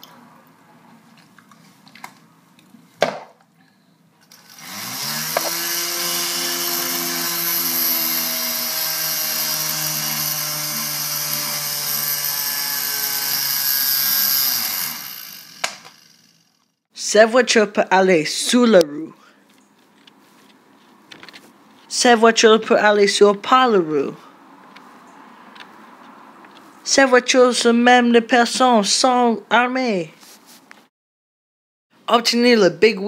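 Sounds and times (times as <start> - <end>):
small electric motor whining: 4.3 - 16.7.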